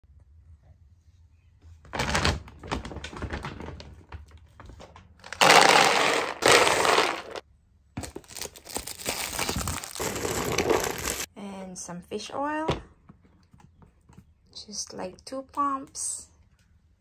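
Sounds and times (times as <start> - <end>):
dry kibble rattling: 5.2 - 7.4
kibble being poured: 5.3 - 7.4.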